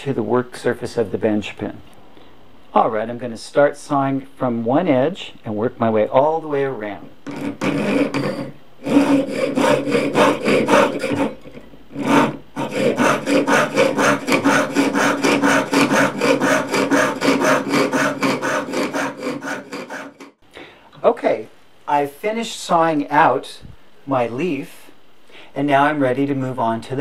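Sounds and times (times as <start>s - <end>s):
saw cutting metal sheet: 7.3s - 20.4s.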